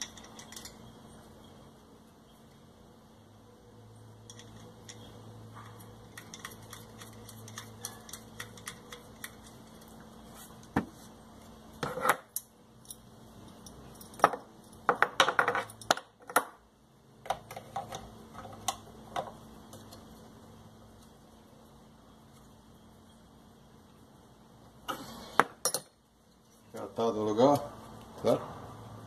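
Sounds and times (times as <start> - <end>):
small metal parts clinking: 0.0 - 1.0, 4.2 - 10.0, 11.9 - 16.4.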